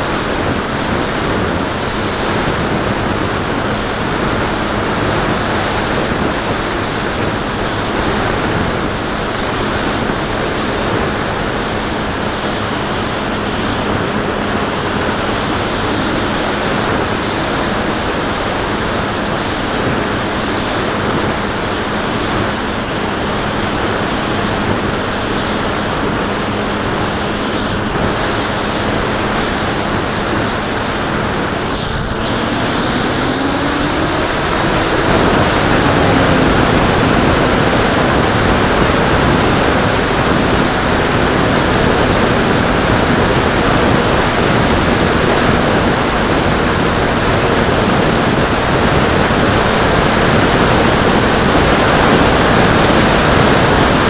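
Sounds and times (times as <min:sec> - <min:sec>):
wind rushing over microphone: 0:00.0 - 0:54.0
electric motor humming: 0:21.9 - 0:45.6.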